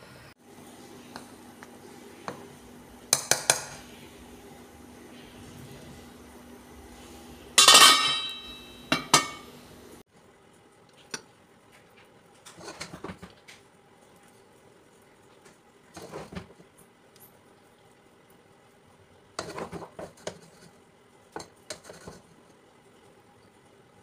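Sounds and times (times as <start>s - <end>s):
dishware clinks and scrapes: 7.6s - 9.5s
spoon clanking against metal pot: 7.6s - 9.5s.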